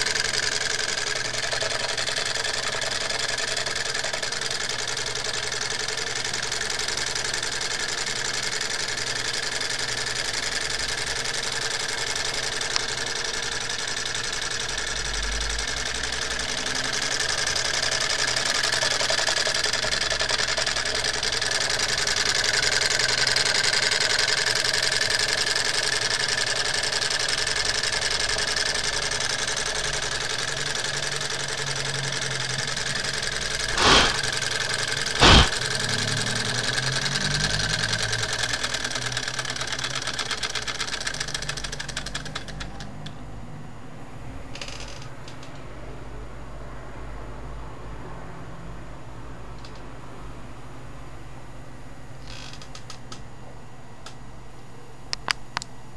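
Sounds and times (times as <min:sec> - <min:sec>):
small stirling engine running: 0:00.0 - 0:43.2.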